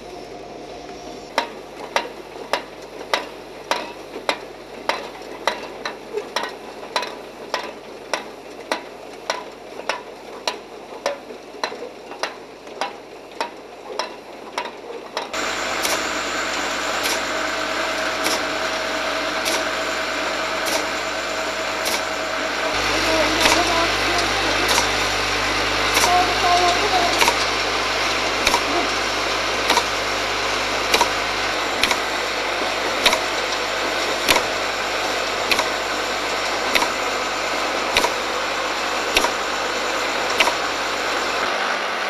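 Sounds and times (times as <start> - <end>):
machine clicks: 1.3 - 16.2, 16.8 - 17.3, 19.3 - 19.8, 20.6 - 21.0, 23.4 - 25.0, 25.9 - 26.2, 28.4 - 28.7, 29.6 - 30.0, 30.9 - 31.2, 31.8 - 32.1, 32.9 - 34.6, 35.2 - 37.2, 37.8 - 38.3, 39.1 - 39.5, 40.2 - 40.7
mechanical clacking: 1.3 - 30.1, 30.8 - 41.4
machine hum: 15.3 - 42.0
hiss: 15.4 - 25.0, 30.9 - 42.0.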